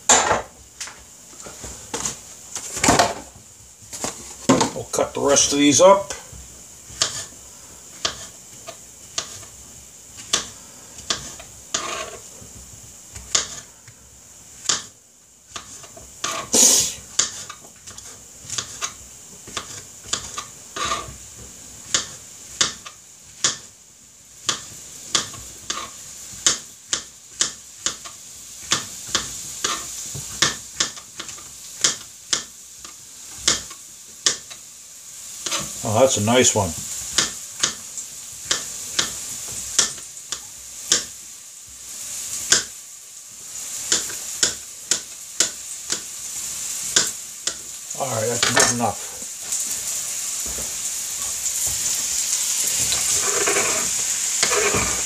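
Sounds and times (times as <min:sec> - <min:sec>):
knife chopping on wooden board: 0:07.0 - 0:07.3, 0:08.0 - 0:08.3, 0:10.3 - 0:12.2, 0:33.4 - 0:34.5, 0:54.4 - 0:55.0.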